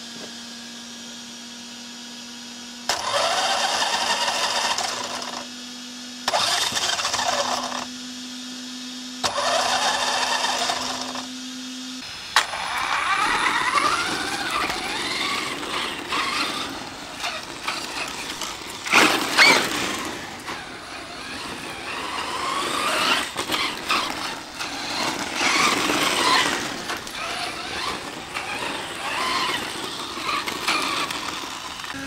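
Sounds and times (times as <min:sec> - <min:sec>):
rc truck electric motor whine: 0:00.0 - 0:32.0.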